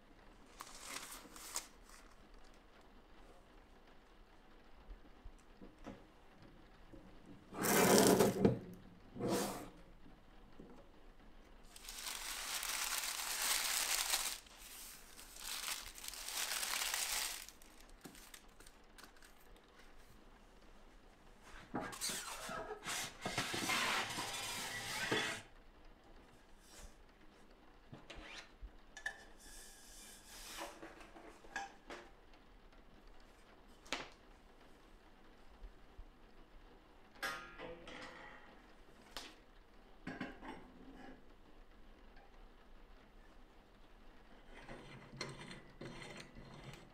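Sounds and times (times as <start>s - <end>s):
paper rustling: 0.5s - 2.6s, 11.7s - 20.0s
screen scraping in rack: 7.5s - 8.6s, 9.2s - 9.8s, 21.8s - 25.5s.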